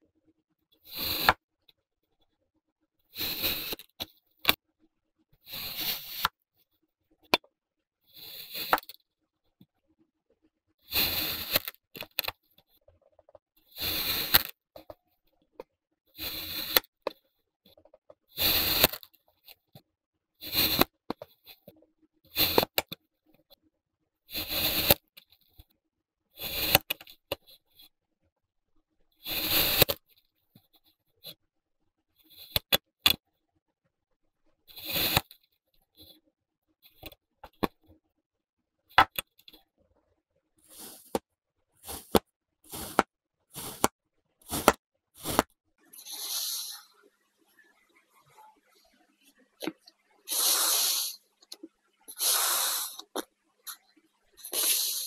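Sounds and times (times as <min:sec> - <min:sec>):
sand being cut: 0:03.2 - 0:03.8, 0:05.5 - 0:06.3, 0:10.9 - 0:11.7, 0:13.8 - 0:14.4, 0:16.2 - 0:16.8, 0:18.4 - 0:19.0, 0:29.3 - 0:29.9, 0:40.7 - 0:41.2, 0:41.8 - 0:46.9, 0:50.3 - 0:51.2, 0:52.1 - 0:53.2, 0:54.4 - 0:55.0.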